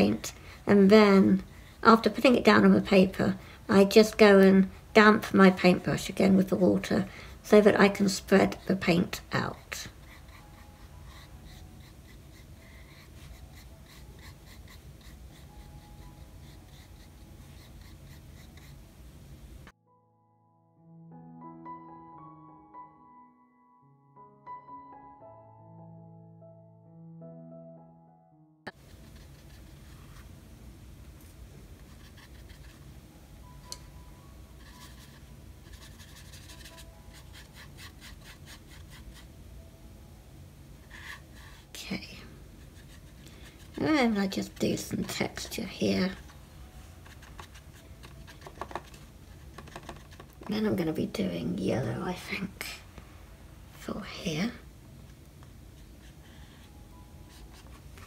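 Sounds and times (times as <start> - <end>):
paintbrush scratching on paper: 7.7 - 18.8, 28.7 - 30.4, 31.8 - 32.9, 34.6 - 39.3, 40.8 - 51.2, 55.8 - 58.0
room hiss: 9.9 - 19.7, 28.7 - 36.0.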